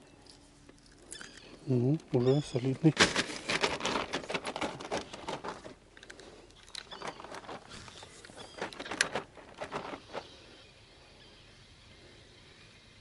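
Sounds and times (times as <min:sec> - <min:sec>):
rapid clicking and rustling: 0:02.8 - 0:10.6.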